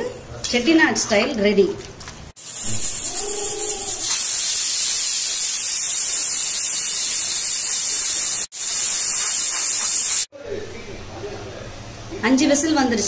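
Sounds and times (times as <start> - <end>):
pressure cooker steam hissing: 2.4 - 10.3.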